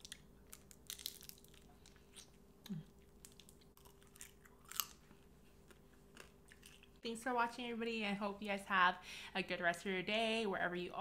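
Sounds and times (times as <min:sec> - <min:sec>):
chewing crisp fried food: 0:00.0 - 0:07.0.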